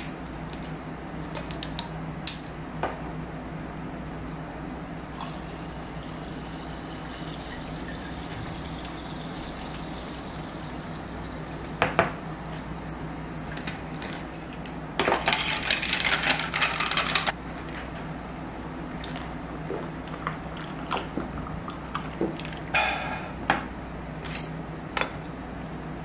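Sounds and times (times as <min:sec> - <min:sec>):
sparkling water pouring into glass: 0:04.7 - 0:14.0.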